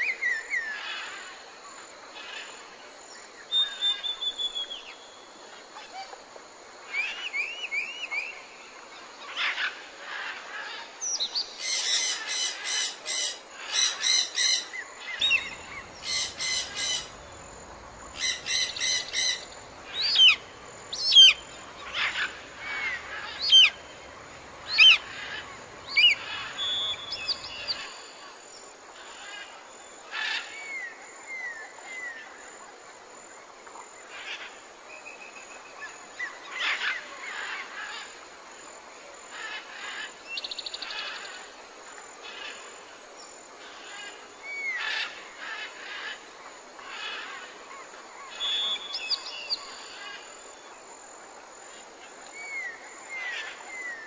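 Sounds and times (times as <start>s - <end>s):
bird whistling: 3.6s - 4.9s, 24.7s - 27.8s
birds chattering: 15.2s - 28.0s.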